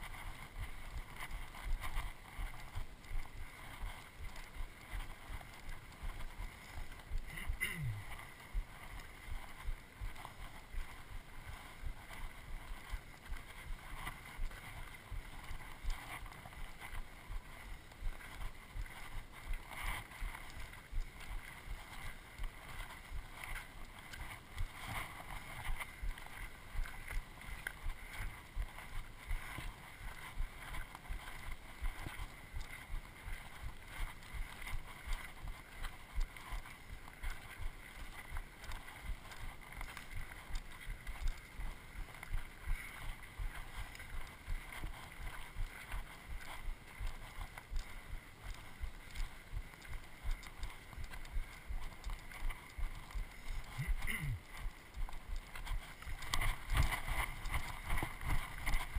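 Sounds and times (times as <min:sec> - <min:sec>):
footsteps on gravel: 0:00.0 - 0:58.9.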